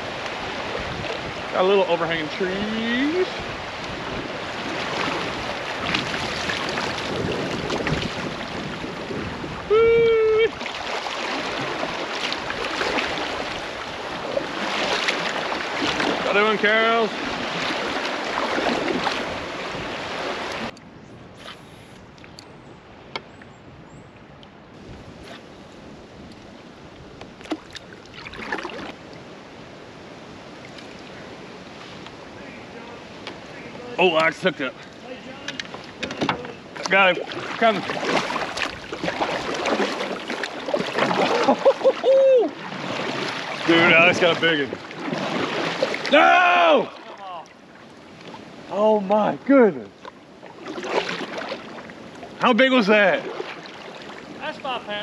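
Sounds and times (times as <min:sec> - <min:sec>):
wind on microphone: 0:00.0 - 0:16.3, 0:17.1 - 0:34.0
creek current rushing: 0:00.0 - 0:20.7, 0:27.5 - 0:49.8, 0:50.4 - 0:55.0.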